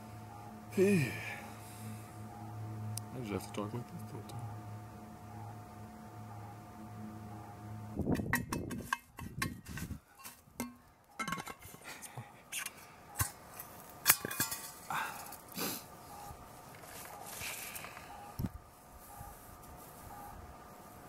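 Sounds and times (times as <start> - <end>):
faint steady hum: 0.0 - 21.0
objects clicking and clinking: 10.2 - 11.8.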